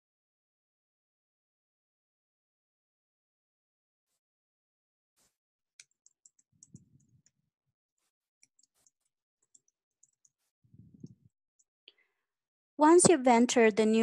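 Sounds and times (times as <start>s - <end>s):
keyboard typing: 5.8s - 7.4s, 8.4s - 11.3s.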